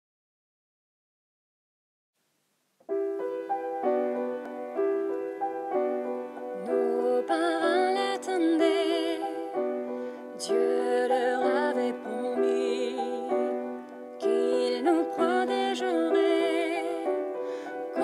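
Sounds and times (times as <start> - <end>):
piano playing slow chords: 2.9 - 18.0
person singing with vibrato: 6.6 - 18.0.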